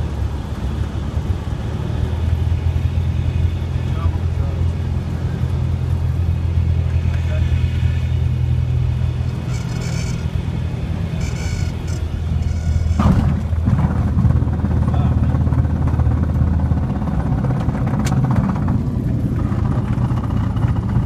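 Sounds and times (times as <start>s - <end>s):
aircraft engine droning: 0.0s - 21.0s
tyres rumbling on runway: 0.0s - 21.0s
stall warning horn beeps: 9.4s - 10.4s, 11.0s - 13.2s
wheels touching down thump: 11.3s - 14.3s.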